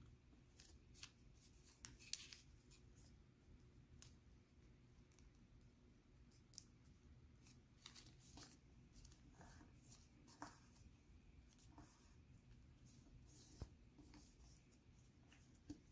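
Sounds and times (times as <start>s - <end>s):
low room hum: 0.0s - 15.9s
paper rustling and crinkling: 0.5s - 2.8s, 7.4s - 10.8s.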